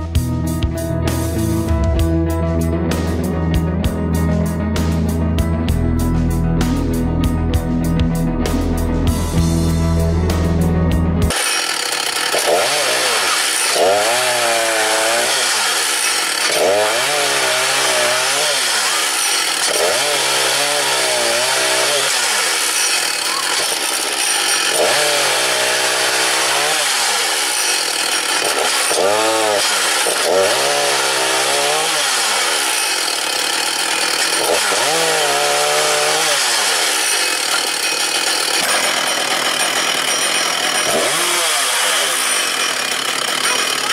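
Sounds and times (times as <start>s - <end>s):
chainsaw cutting logs: 11.3s - 43.9s.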